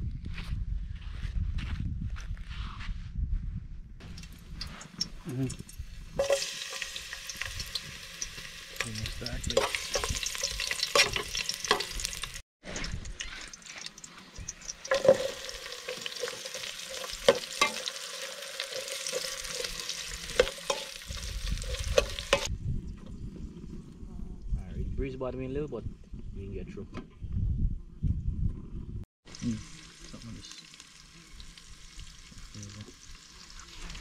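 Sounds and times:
wind rumbling on microphone: 0.0 - 6.2, 21.0 - 29.0
garlic and onion sizzling in oil: 4.0 - 22.5, 29.3 - 34.0
metal spoon scraping pot: 6.2 - 12.3, 14.6 - 22.5.

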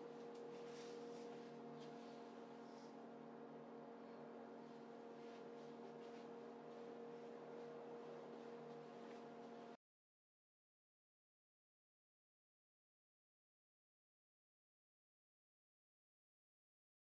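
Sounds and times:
faint steady hum: 0.0 - 9.8.

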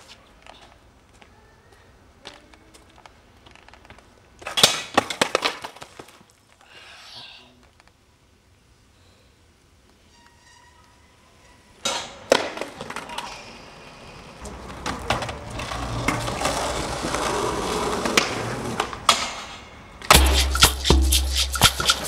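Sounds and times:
skateboard wheels rolling on concrete: 0.0 - 6.8, 10.9 - 22.0
skateboard clacking on ground: 2.2 - 6.4, 11.8 - 13.7, 14.4 - 22.0
skateboard trucks grinding ledge: 14.6 - 19.3.

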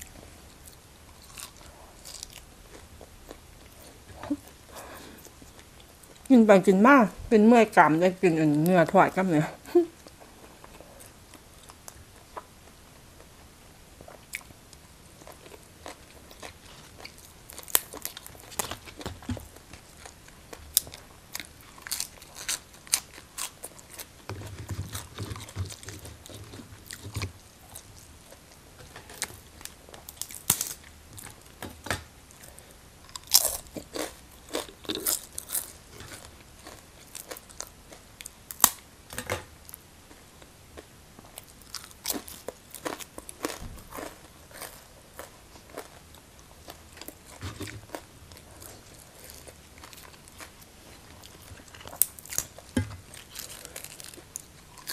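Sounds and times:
person chewing crunchy food: 0.0 - 6.3, 14.0 - 31.7, 32.3 - 38.8, 39.6 - 54.9.

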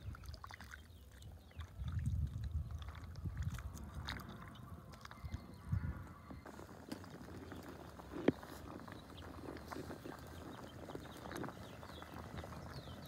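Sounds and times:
small wet clicks: 0.0 - 5.4.

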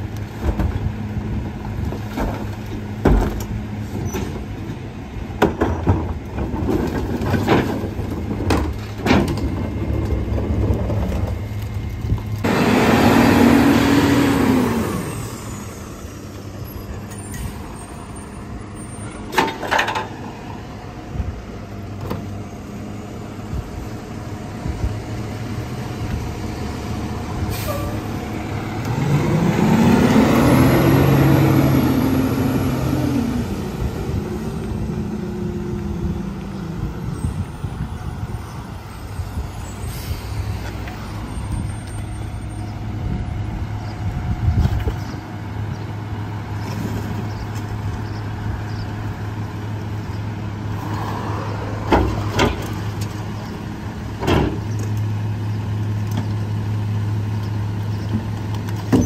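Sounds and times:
hydraulic packer running: 5.4 - 17.5
engine revving: 12.4 - 16.0, 28.2 - 35.4.

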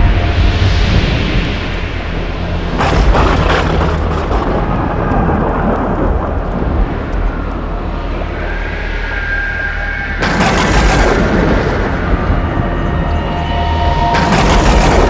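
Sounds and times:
crackling thunderclap: 0.0 - 15.0
low thunder rumble: 0.0 - 15.0.

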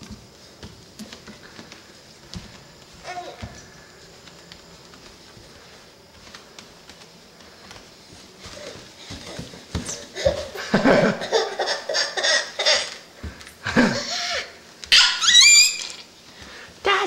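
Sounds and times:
toddler laughing and squealing: 11.2 - 13.0, 14.9 - 16.1.

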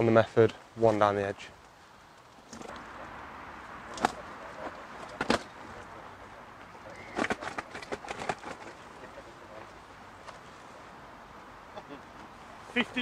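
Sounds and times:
fishing gear knocking and clattering: 7.1 - 8.8.

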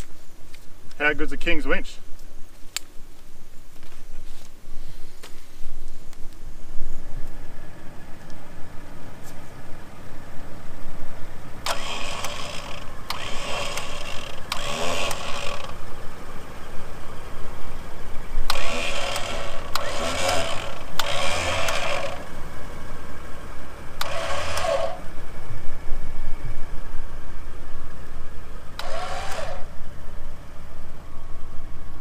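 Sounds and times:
vehicle engine idling: 4.6 - 32.0
electric winch running: 11.6 - 16.0, 18.4 - 22.6, 23.8 - 25.2, 28.7 - 29.8.

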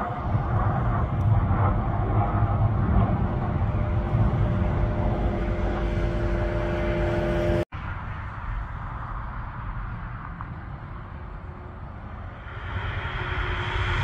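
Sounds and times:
low rumble with hum: 0.0 - 14.0
hissy outdoor noise: 3.4 - 14.0.

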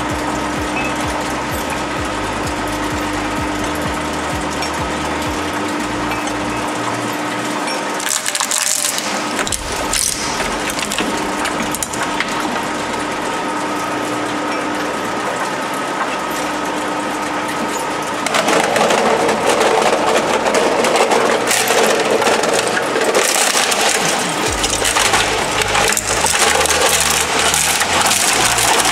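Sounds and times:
plastic cracking in shredder: 0.0 - 28.9
shredder humming: 0.0 - 28.9
dense crunching of plastic casing: 6.6 - 14.0, 18.1 - 28.9.

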